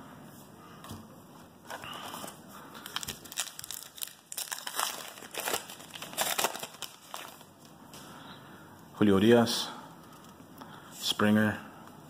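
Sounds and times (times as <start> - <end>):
wrapper crinkling: 1.7 - 7.7.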